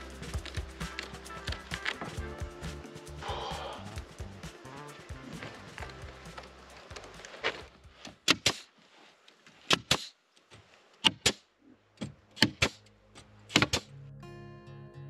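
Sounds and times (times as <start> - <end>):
hammer blows on wood: 0.0 - 6.0.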